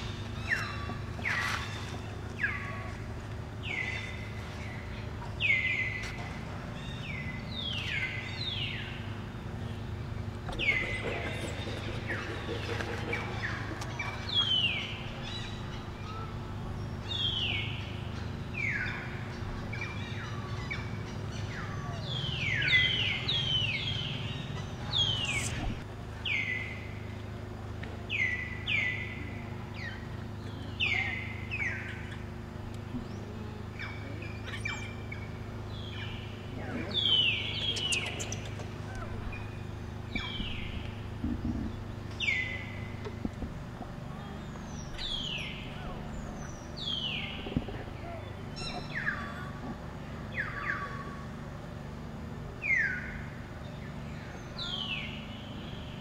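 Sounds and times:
steady low hum: 0.0s - 56.0s
bird chirping: 3.6s - 26.9s, 28.1s - 43.3s, 44.1s - 49.5s.

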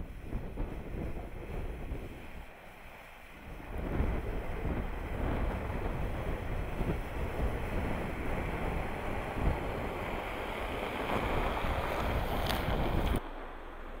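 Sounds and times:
wind on microphone: 0.0s - 13.2s
car engine passing: 4.2s - 14.0s.

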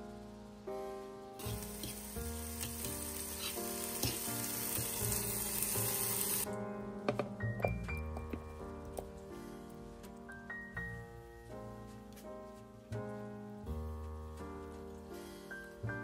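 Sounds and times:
background music: 0.0s - 16.0s
vegetables sizzling in a pan: 1.4s - 6.5s.

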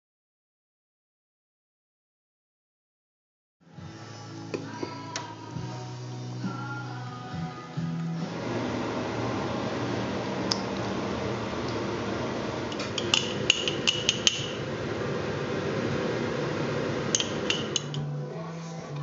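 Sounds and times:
steady background hiss: 3.8s - 19.0s
kitchenware clinking on jug: 12.7s - 14.6s, 17.2s - 18.0s.

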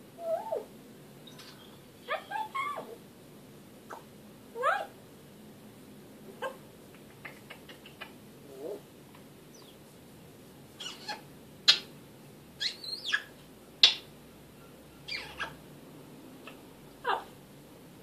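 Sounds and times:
parrot whistles and squeaky calls: 10.8s - 11.9s, 12.6s - 14.0s, 15.0s - 15.6s.

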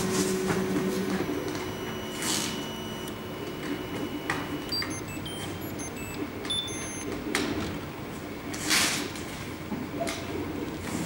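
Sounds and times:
stepper motors whining: 0.0s - 7.1s
fans whirring: 0.0s - 8.5s.

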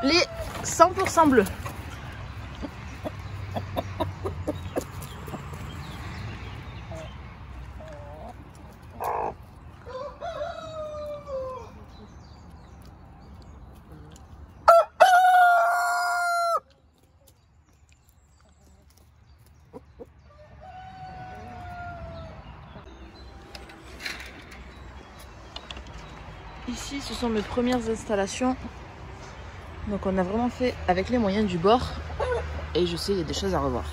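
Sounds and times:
hens clucking: 0.0s - 12.1s
rooster crowing: 14.6s - 16.6s, 20.4s - 22.4s.

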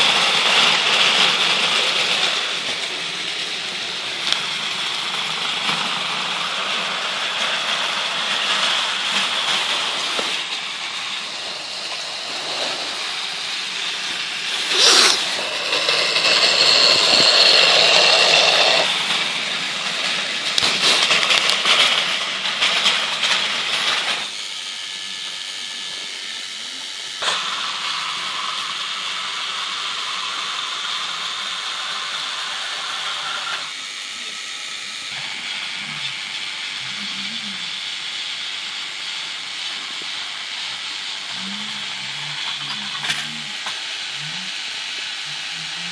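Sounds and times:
wheels rattling over track: 0.0s - 24.3s
toy train motors whirring: 0.0s - 45.9s.

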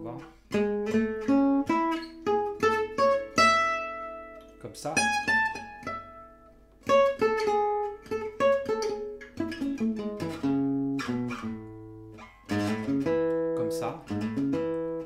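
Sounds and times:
acoustic guitar picked arpeggios: 0.0s - 15.0s.

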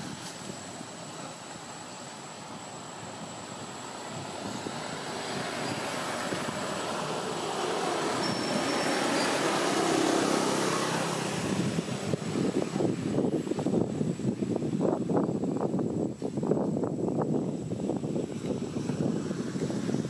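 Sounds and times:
vehicle passing: 3.0s - 13.1s.

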